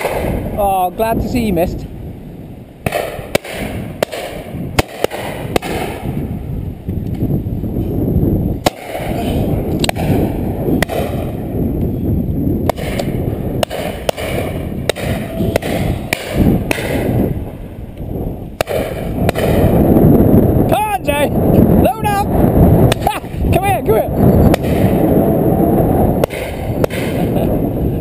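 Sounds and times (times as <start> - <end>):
shotgun shots: 0.0 - 0.6, 2.8 - 6.2, 8.6 - 9.2, 9.8 - 11.4, 12.7 - 17.4, 18.6 - 19.8, 24.5 - 25.1, 26.2 - 27.5
wind rumble on microphone: 0.0 - 28.0.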